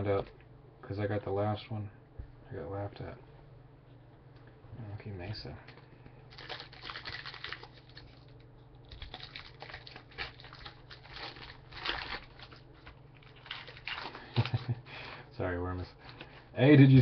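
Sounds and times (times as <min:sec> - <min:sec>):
cards and foil wrappers crinkling: 0:05.7 - 0:14.8.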